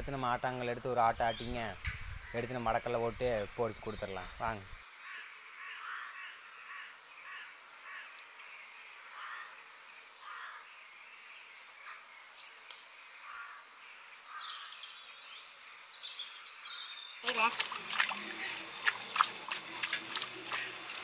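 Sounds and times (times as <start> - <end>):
faint outdoor hiss: 0.0 - 21.0
crows cawing: 5.0 - 8.2, 9.1 - 9.6, 10.2 - 10.6, 13.2 - 13.6.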